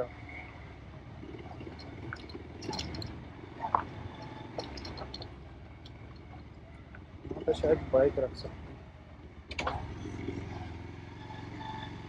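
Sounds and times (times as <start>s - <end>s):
motorcycle engine running low: 0.0s - 9.0s.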